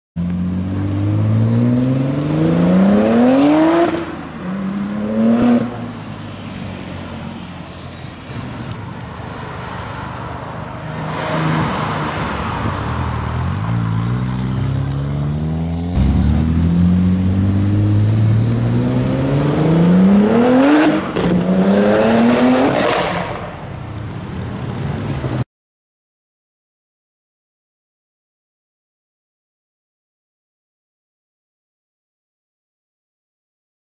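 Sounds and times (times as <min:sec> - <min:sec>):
car engine accelerating hard: 0:13.1 - 0:23.2.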